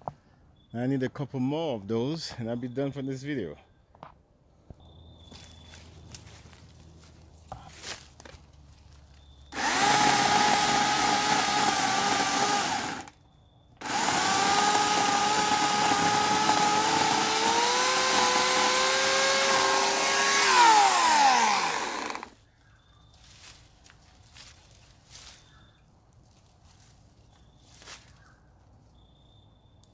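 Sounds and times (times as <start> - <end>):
electric chainsaw whining: 9.5 - 13.1, 13.8 - 22.4.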